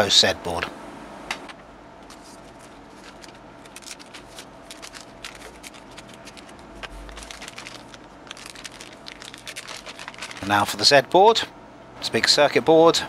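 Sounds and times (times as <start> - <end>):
plastic bags crinkling: 2.1 - 10.8.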